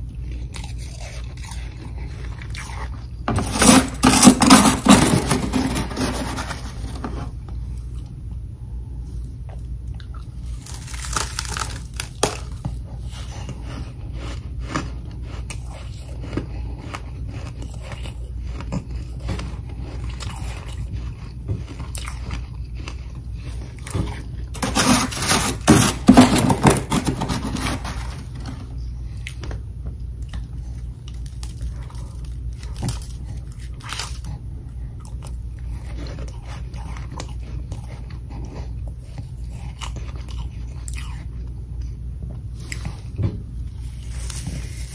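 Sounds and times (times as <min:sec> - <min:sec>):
chewing crunchy frost: 0:00.0 - 0:08.2, 0:09.2 - 0:44.9
metal spoon scraping frost: 0:03.3 - 0:07.2, 0:24.6 - 0:28.6.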